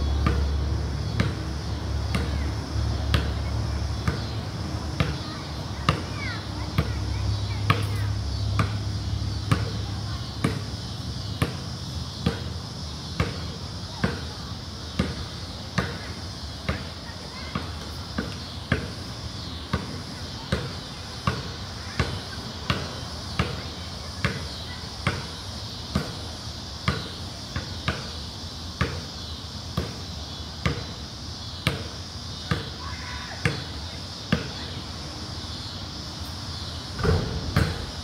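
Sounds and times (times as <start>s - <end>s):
basketball dribbled on concrete: 0.2s - 2.4s, 3.1s - 4.4s, 5.0s - 6.2s, 8.5s - 10.7s, 11.3s - 12.5s, 13.1s - 19.0s, 19.7s - 26.2s, 26.8s - 28.2s, 28.8s - 29.0s, 29.8s - 30.0s, 30.6s - 31.0s, 31.6s - 32.8s, 33.4s - 33.7s, 34.3s - 34.6s, 37.0s - 38.0s.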